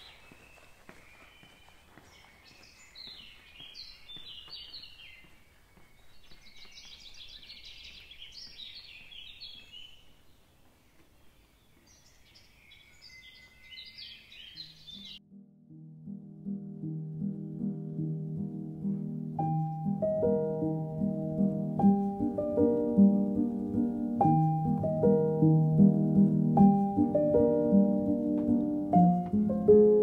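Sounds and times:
faint background noise: 0.0 - 13.6
songbird chirping: 0.0 - 15.2, 16.0 - 30.0.

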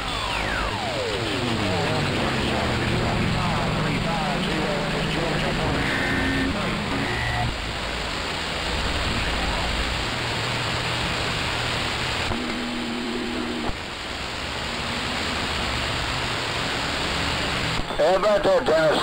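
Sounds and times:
low steady tone: 0.0 - 7.8
radio static hiss: 0.0 - 19.0.

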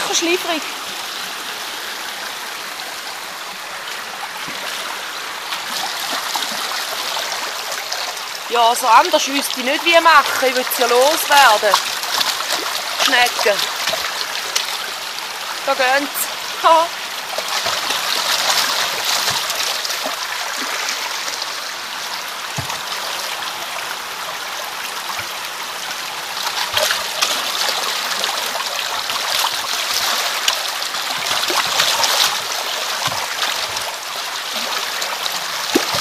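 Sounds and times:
stream water rushing: 0.0 - 36.0
small knocks on plastic tub: 22.6 - 22.9.

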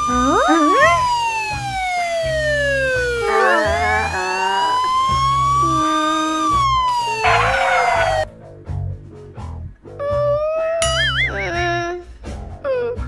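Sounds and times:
police siren wailing: 0.0 - 8.3.

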